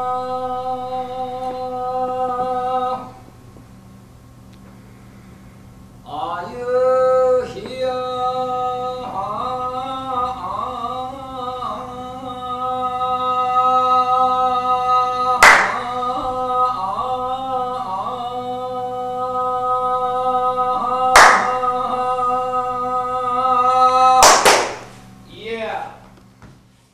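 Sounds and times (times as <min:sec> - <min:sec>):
man chanting: 0:00.0 - 0:03.2, 0:06.1 - 0:24.6
sharp hand claps: 0:15.4 - 0:16.0, 0:21.2 - 0:21.7, 0:24.2 - 0:25.0.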